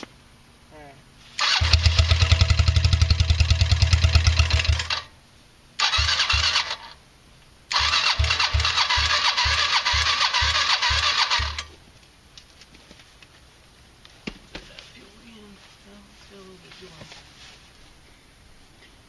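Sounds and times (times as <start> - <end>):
electric starter cranking engine: 1.4 - 5.1, 5.8 - 7.0, 7.7 - 11.7.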